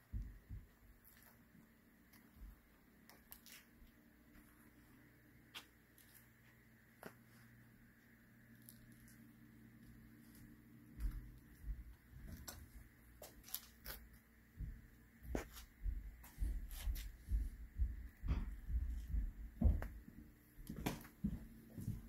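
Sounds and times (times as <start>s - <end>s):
footsteps on concrete floor: 9.8s - 22.0s.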